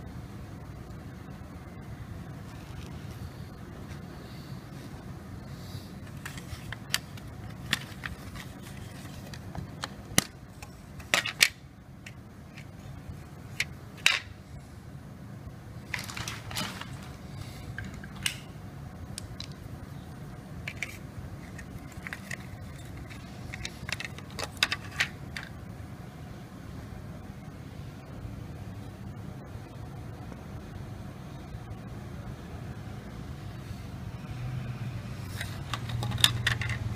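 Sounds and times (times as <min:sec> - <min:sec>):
plastic case clicking: 0:06.1 - 0:12.7, 0:20.7 - 0:25.5, 0:35.4 - 0:36.9.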